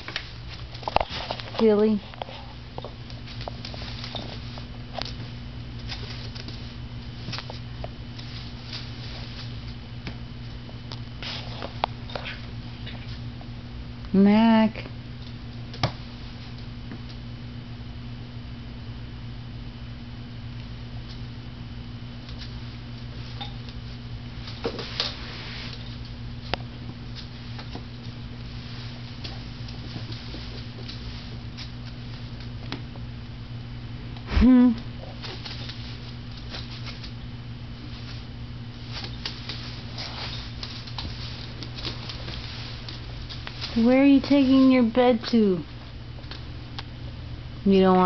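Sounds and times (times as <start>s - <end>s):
puppy paws clicking and scuffing: 0.0s - 13.5s, 22.1s - 33.1s, 34.9s - 46.9s
steady low hum: 0.0s - 48.0s.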